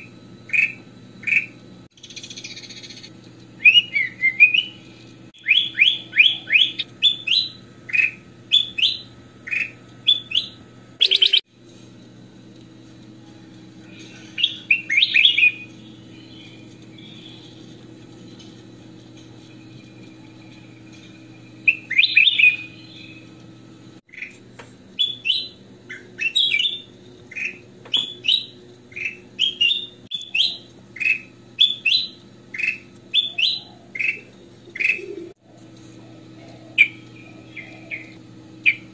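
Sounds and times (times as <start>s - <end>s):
steady low hum: 0.0s - 38.9s
bird singing whistled notes: 0.5s - 4.8s, 5.4s - 11.4s, 14.3s - 17.6s, 19.7s - 23.3s, 25.0s - 35.2s.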